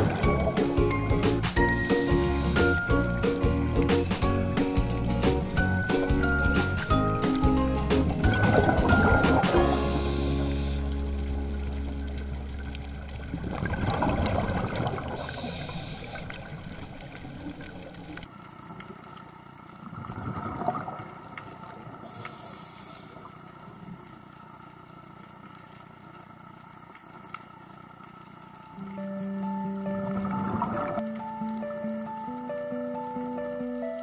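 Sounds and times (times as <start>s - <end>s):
underwater exhaled breath bubbling: 13.1s - 17.9s.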